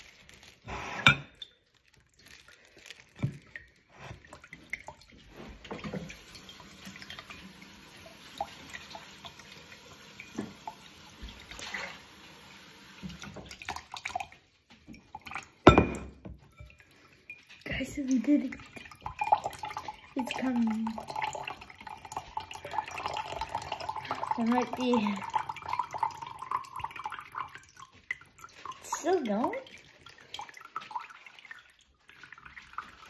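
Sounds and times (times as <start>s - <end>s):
taps and splashes: 1.3s - 9.5s, 13.0s - 22.6s
water trickling into a glass: 12.6s - 33.0s.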